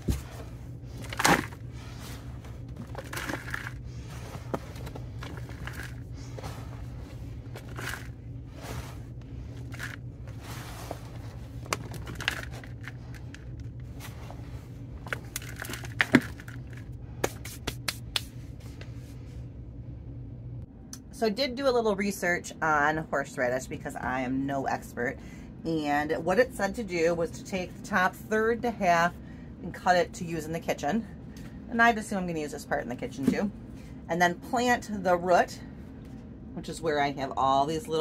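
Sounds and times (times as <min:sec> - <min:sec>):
soil scraping and rustling: 0:00.0 - 0:16.8
steady low hum: 0:00.0 - 0:38.0.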